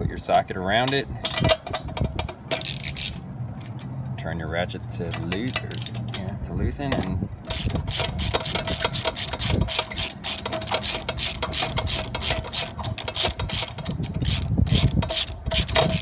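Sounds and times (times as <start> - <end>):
hand ratchet clicking: 1.2 - 3.9, 5.1 - 6.1, 7.0 - 16.0.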